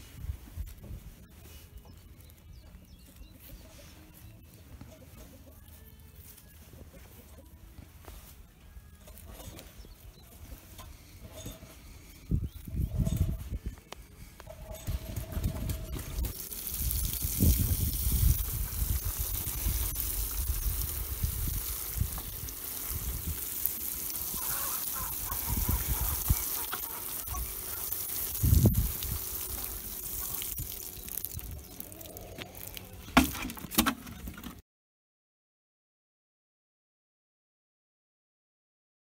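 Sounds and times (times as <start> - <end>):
water spattering on mulch: 16.0 - 33.4.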